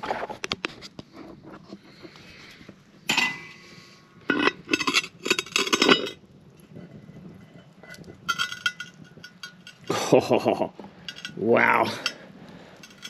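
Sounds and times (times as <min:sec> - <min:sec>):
metal clinks on cast-iron lid: 0:03.1 - 0:03.6, 0:04.3 - 0:06.2, 0:07.9 - 0:10.0, 0:11.0 - 0:12.2.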